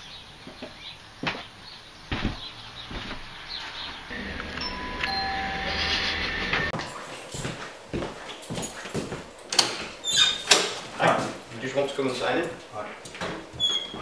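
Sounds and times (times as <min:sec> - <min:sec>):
doorbell ringing: 0:04.1 - 0:06.8.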